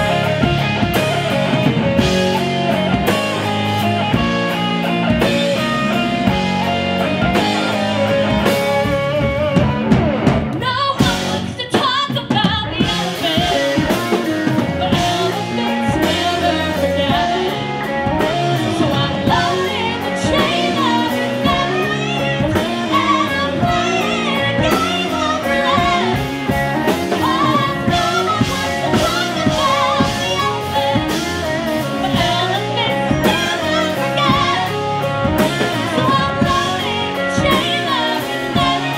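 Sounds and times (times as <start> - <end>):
live band playing: 0.0 - 38.9
woman singing: 10.5 - 38.9.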